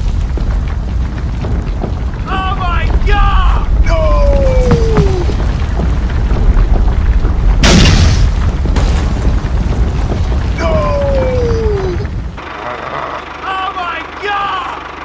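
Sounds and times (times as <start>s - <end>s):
loud boom of concrete cracking: 0.0s - 12.3s
low rumble: 0.0s - 13.4s
falling cartoon tone: 12.5s - 13.6s.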